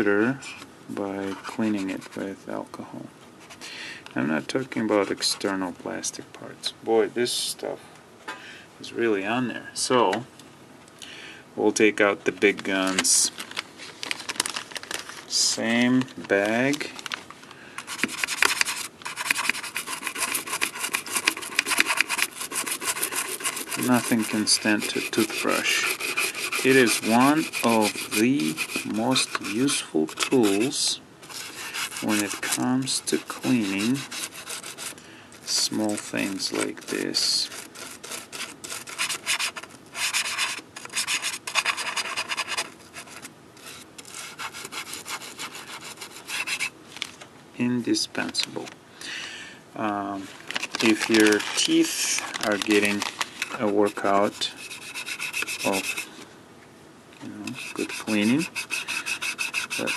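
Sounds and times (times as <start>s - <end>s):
toothbrush scrubbing metal edge: 18.0s - 34.9s, 52.8s - 56.1s, 57.5s - 59.9s.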